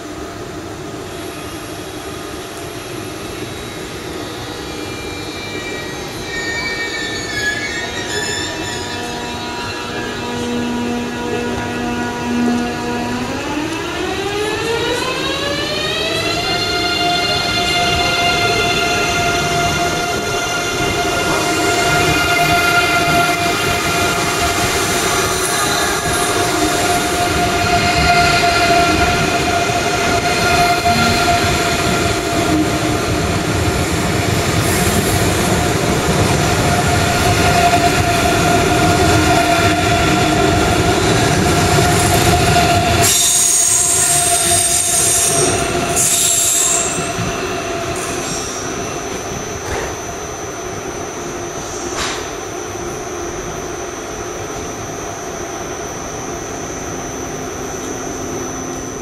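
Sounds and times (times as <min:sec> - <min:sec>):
train rolling rumble: 0:00.0 - 0:59.0
train wheels squealing: 0:03.2 - 0:11.5, 0:36.4 - 0:50.7.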